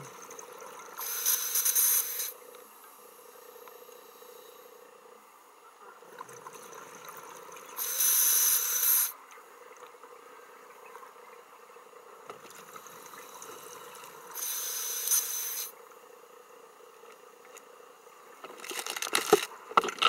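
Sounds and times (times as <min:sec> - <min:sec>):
faint steady hum: 0:00.0 - 0:20.0
regulator inhale hiss: 0:01.0 - 0:02.4, 0:03.0 - 0:04.9, 0:07.8 - 0:09.2, 0:12.9 - 0:15.8.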